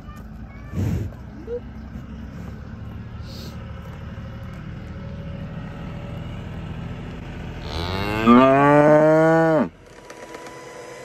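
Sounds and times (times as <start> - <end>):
cow mooing: 7.6 - 9.8.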